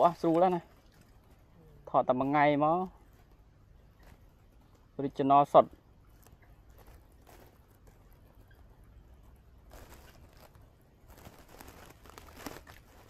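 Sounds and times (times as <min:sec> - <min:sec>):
dry grass rustling: 0:00.0 - 0:13.0.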